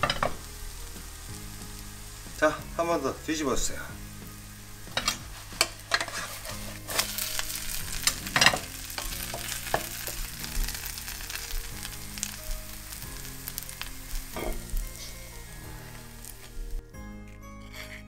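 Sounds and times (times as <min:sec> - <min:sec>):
pancake sizzling in oil: 0:00.0 - 0:16.8
wooden spatula scraping a pan: 0:03.6 - 0:12.3, 0:17.6 - 0:18.0.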